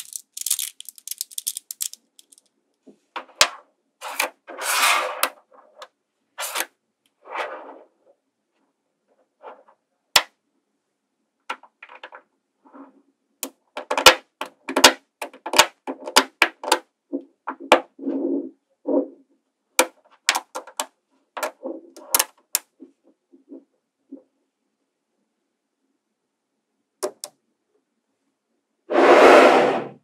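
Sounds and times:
magnetic balls clicking together: 0.0 - 2.5
soft rattles of metal balls: 0.0 - 2.5.

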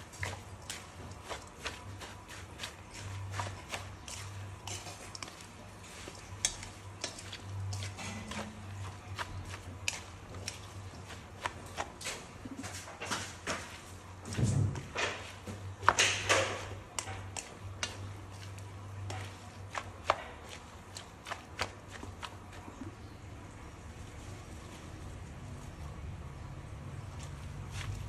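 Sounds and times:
spoon scraping metal bowl: 0.1 - 12.2.

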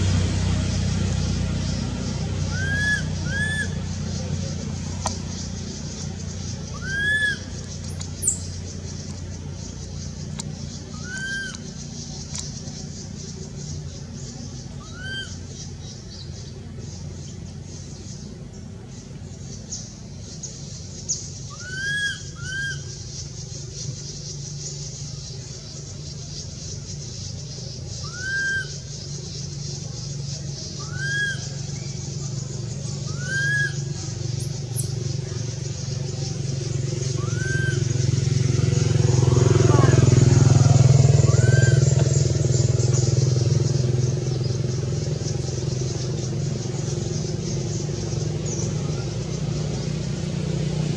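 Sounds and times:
vehicle engine hum: 0.0 - 50.9
baby monkey squeaky calls: 2.5 - 4.2, 6.6 - 8.5, 10.9 - 12.0, 28.0 - 28.8, 30.8 - 31.8, 33.1 - 34.0, 37.2 - 38.0.

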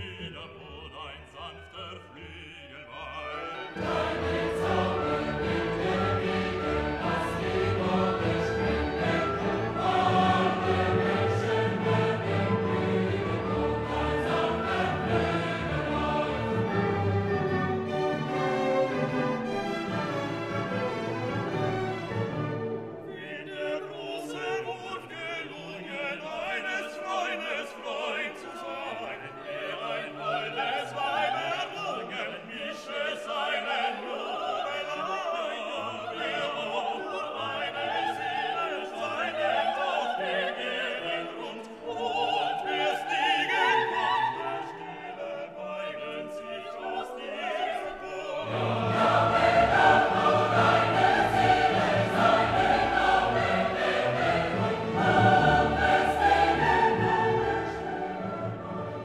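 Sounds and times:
orchestra playing: 0.0 - 31.7, 47.2 - 59.0
operatic singing: 0.0 - 59.0.

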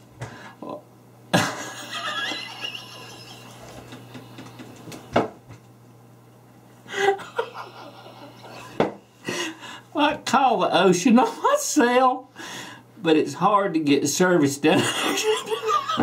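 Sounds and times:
man laughing: 1.4 - 5.0, 6.9 - 9.6, 14.8 - 16.0.

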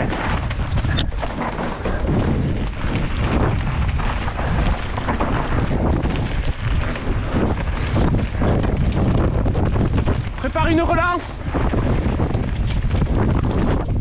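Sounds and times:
bike knocks and rattles: 0.0 - 14.0
tyres on dirt trail: 0.0 - 14.0
wind rushing over microphone: 0.0 - 14.0.

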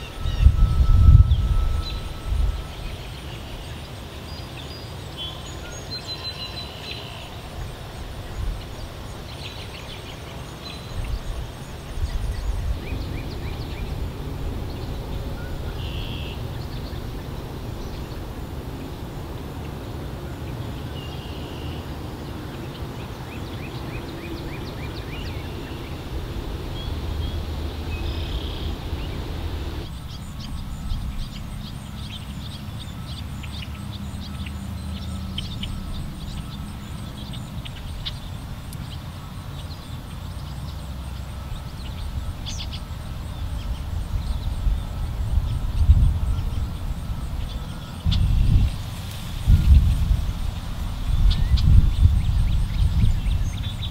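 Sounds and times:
low rumble: 0.0 - 3.9, 11.2 - 21.2, 21.8 - 32.2
small birds chirping: 0.0 - 53.9.

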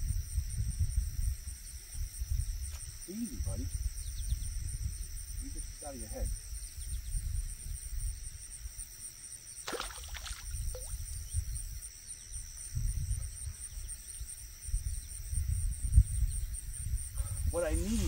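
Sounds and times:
insects chirping: 0.0 - 18.0
low rumbling on microphone: 14.6 - 18.0.

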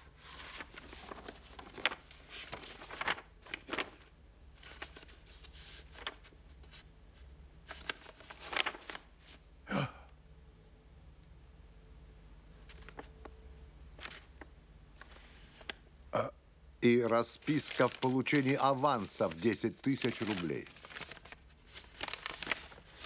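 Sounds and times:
paper sheets rustling: 0.0 - 9.4, 12.6 - 13.2, 14.0 - 15.8, 17.0 - 23.0.

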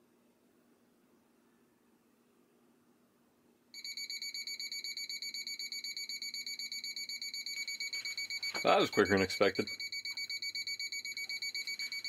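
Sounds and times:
pulsing high-pitched beep: 3.8 - 12.0.

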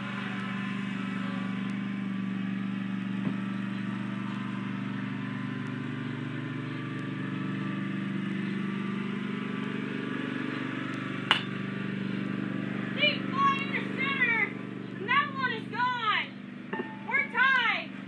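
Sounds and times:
riding lawn mower engine: 0.0 - 18.0.

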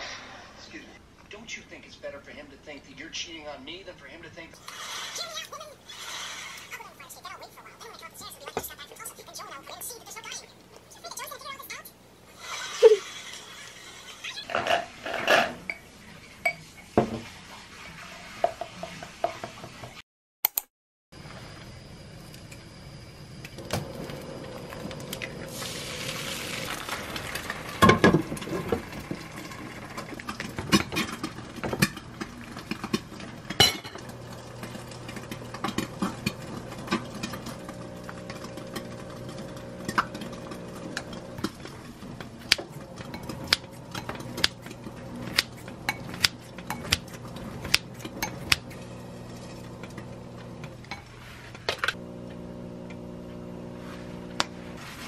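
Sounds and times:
bowls and utensils clinking: 14.5 - 19.9, 24.6 - 51.2.

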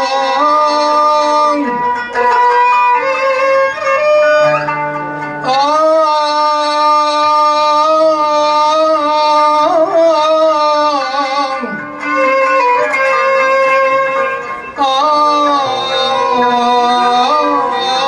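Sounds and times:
person singing: 0.0 - 2.5, 4.5 - 18.0
plucked qanun: 0.0 - 18.0
violin: 0.0 - 18.0.

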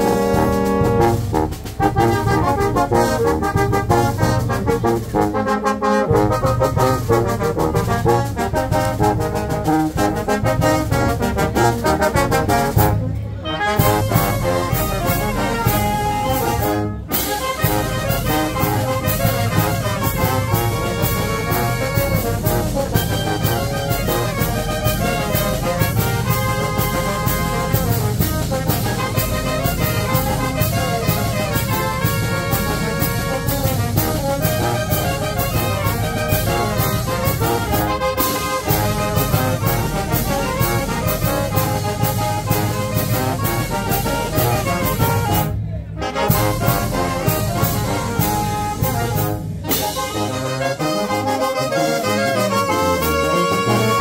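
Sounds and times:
bass drum and snare beat: 0.0 - 5.3, 13.8 - 45.5, 46.2 - 49.9
wind band playing: 0.0 - 54.0.

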